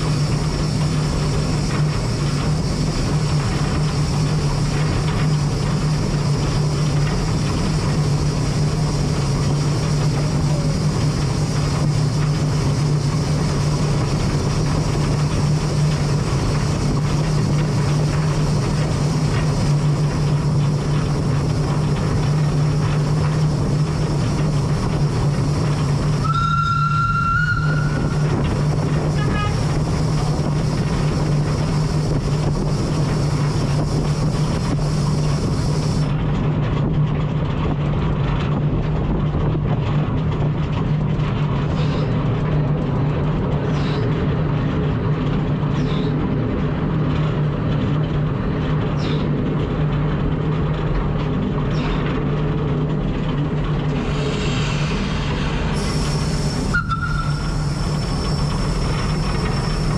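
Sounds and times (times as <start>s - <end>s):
steam tram rumbling: 0.0s - 59.9s
steam whistle: 26.2s - 28.4s, 29.1s - 29.7s, 55.8s - 59.9s.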